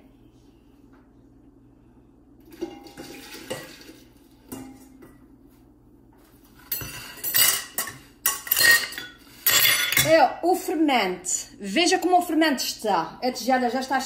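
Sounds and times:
steel bowls and spoons clattering: 2.4 - 5.2, 6.6 - 10.2.

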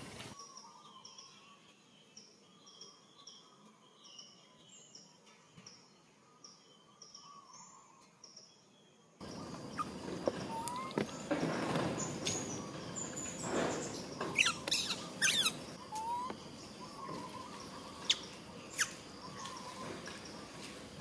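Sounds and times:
rustling in dry leaves: 0.0 - 0.4, 9.3 - 21.0
monkeys squeaking and chirping: 9.4 - 11.3, 12.0 - 19.0.

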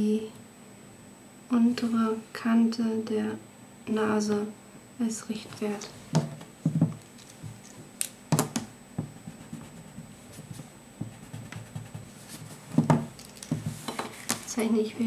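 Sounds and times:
knocks against desk: 6.2 - 7.0, 12.7 - 14.1
eraser rubbing on paper: 9.1 - 12.8.

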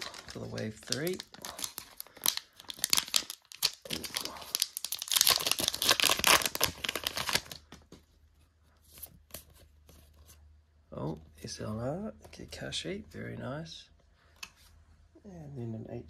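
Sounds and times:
foil wrapper crinkling: 0.0 - 7.7.

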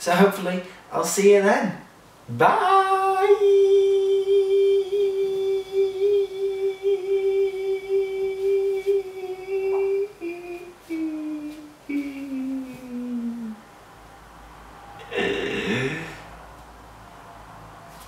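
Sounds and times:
man humming or singing: 2.3 - 13.6, 15.0 - 16.3.

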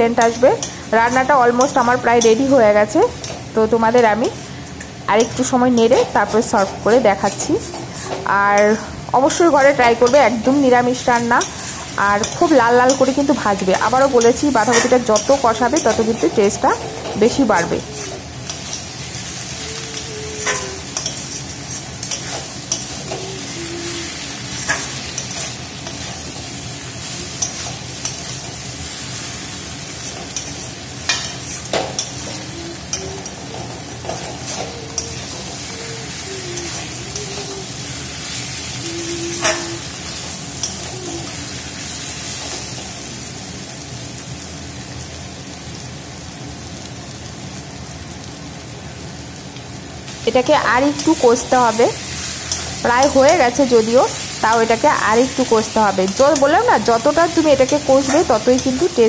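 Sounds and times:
vegetables sizzling in a pan: 0.0 - 59.0
metal spatula scraping a pan: 0.1 - 29.2, 29.9 - 42.8.

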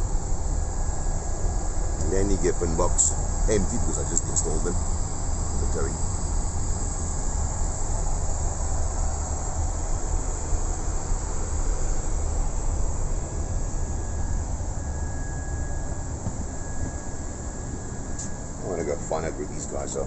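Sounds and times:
faint steady whine: 0.0 - 20.0
rush of cabin airflow: 0.0 - 20.0.

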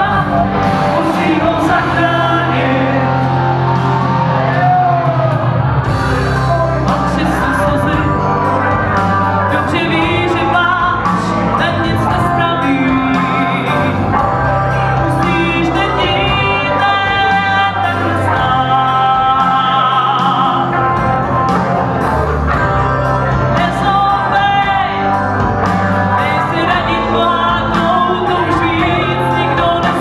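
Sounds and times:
woman singing: 0.0 - 3.4, 6.8 - 20.8, 23.5 - 25.2, 26.1 - 30.0
bass guitar: 0.0 - 30.0
electric guitar: 0.0 - 30.0
keyboard: 0.0 - 30.0
steady drum beat: 0.0 - 30.0.

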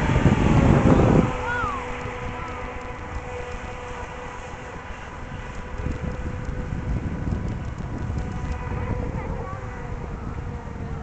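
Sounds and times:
faint model boat motor whine: 0.0 - 11.0
wind buffeting microphone: 0.0 - 11.0.

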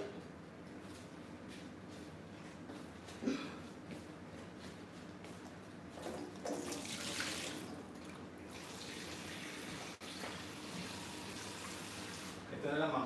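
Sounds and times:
tap water running into sink: 6.2 - 7.7.

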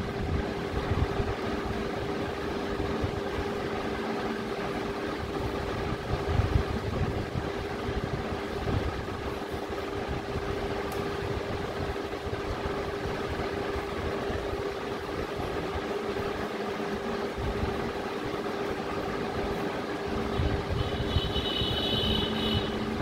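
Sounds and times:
mechanical hum: 0.0 - 23.0.

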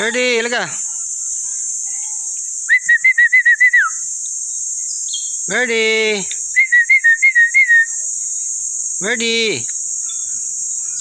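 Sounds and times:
high buzz of insects: 0.0 - 11.0
quick whistled notes: 2.7 - 4.0.

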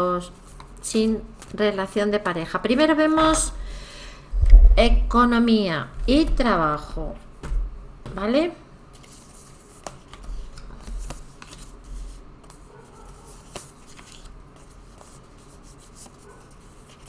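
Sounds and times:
cards rustling: 9.0 - 12.6, 13.3 - 17.0.

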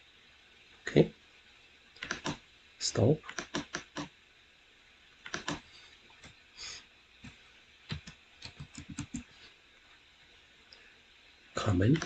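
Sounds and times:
computer keyboard typing: 2.0 - 2.4, 3.3 - 4.1, 5.2 - 5.6, 7.9 - 9.2.

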